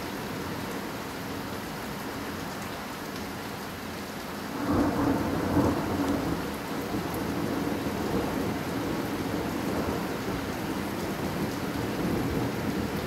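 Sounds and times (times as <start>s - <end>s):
heavy rain: 0.0s - 13.0s
thunder rumbling: 4.6s - 10.1s.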